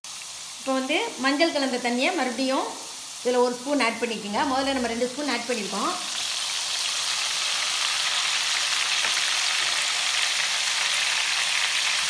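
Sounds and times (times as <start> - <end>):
oil sizzling and crackling: 0.0 - 12.0.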